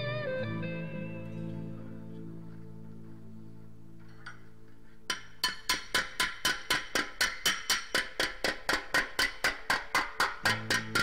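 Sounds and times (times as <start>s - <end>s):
hammer blows on sheet metal: 5.1s - 11.0s.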